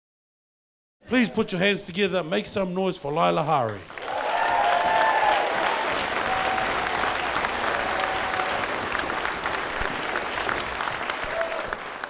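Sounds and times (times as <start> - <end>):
crowd applauding: 3.7 - 12.0.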